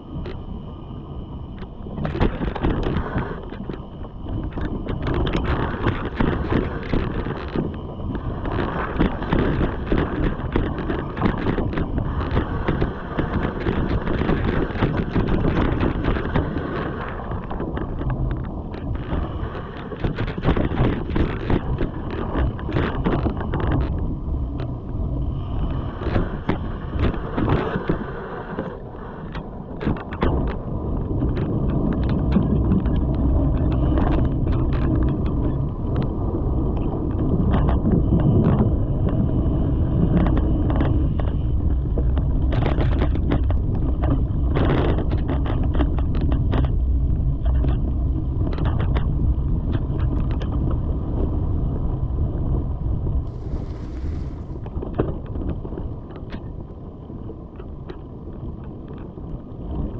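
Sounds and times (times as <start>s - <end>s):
wind buffeting microphone: 0.0s - 59.9s
bike clicks and rattles: 1.6s - 16.6s, 40.0s - 51.3s
bike tyres on leaves and dirt: 53.3s - 55.9s.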